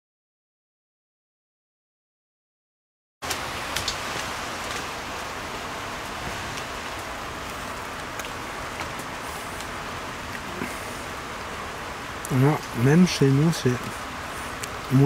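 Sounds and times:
steady rain falling: 0:03.2 - 0:15.0.

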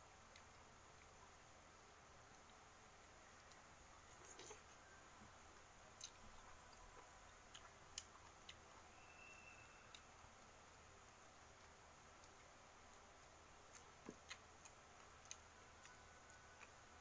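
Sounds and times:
soft clicks while eating: 0:09.9 - 0:16.9.

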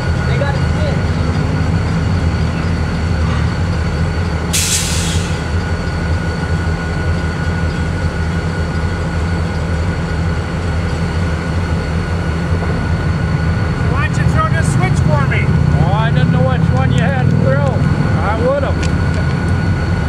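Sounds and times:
diesel locomotive engine rumble: 0:00.0 - 0:20.0
air hiss: 0:04.5 - 0:05.6.

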